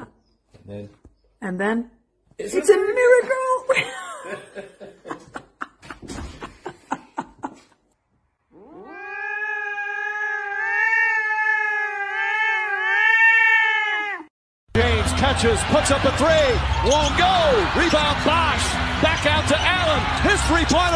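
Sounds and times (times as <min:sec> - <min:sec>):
cat yowling: 0:08.5 - 0:14.3.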